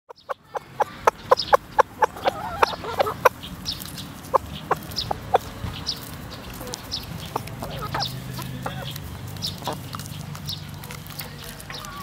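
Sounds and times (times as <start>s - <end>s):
chicken wavering call: 0.1s - 3.3s, 6.6s - 9.9s
chickens clucking: 0.1s - 12.0s.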